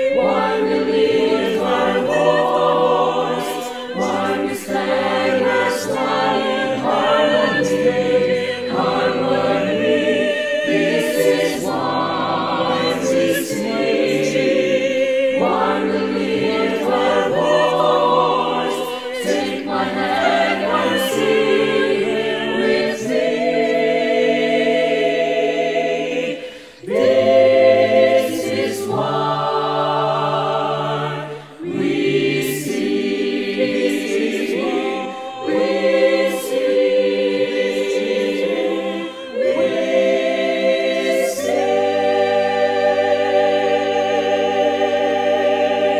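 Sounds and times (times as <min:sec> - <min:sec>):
mixed choir singing in harmony: 0:00.0 - 0:45.9.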